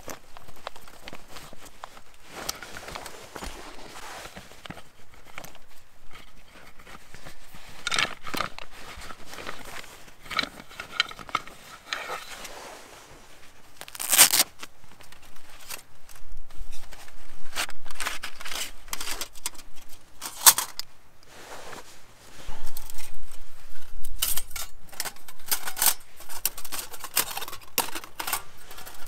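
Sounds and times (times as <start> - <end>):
rustling of camping gear: 0.0 - 29.0
velcro flap ripping open: 13.8 - 14.7.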